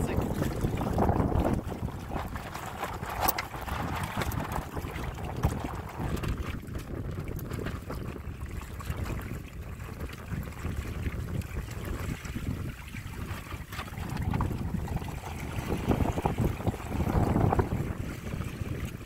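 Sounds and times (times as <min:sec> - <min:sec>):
water washing along hull: 0:00.0 - 0:19.0
wind rumbling on microphone: 0:00.0 - 0:19.0.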